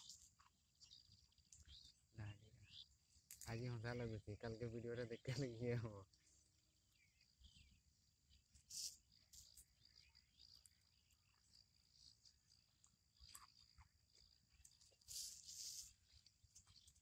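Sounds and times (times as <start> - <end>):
soft ticks and rustles: 0.0 - 2.0, 8.3 - 17.0
high-pitched insect drone: 6.9 - 17.0
scratchy rustle: 15.0 - 16.0.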